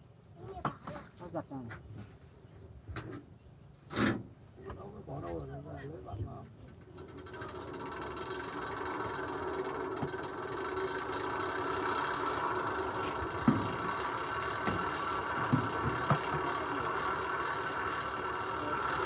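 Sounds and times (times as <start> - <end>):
small engine running: 6.7 - 19.0.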